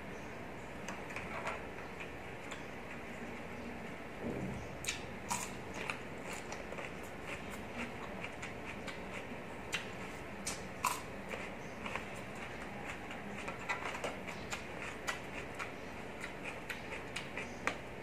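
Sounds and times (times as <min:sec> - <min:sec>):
cucumber crunching and chewing: 0:04.8 - 0:18.0.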